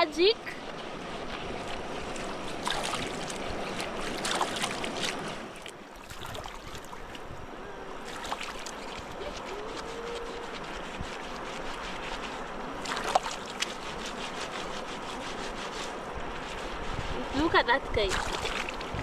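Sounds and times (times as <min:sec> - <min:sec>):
river water flowing: 0:00.0 - 0:19.0
water splashing and trickling: 0:00.0 - 0:19.0.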